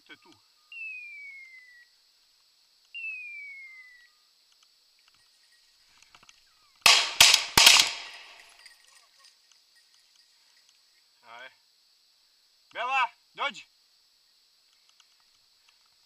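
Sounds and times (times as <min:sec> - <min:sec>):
shotgun shots: 0:06.9 - 0:08.6.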